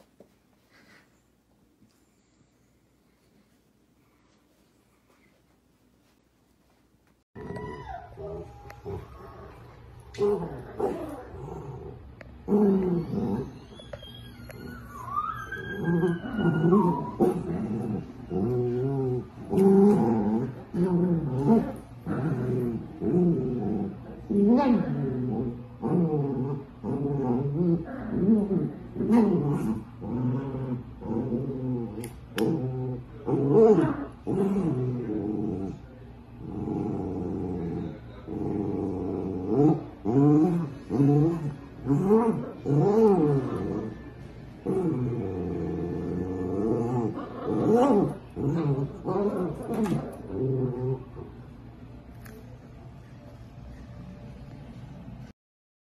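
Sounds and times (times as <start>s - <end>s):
dog whining: 7.4s - 9.6s, 12.6s - 19.2s
dogs growling in play: 7.4s - 52.0s.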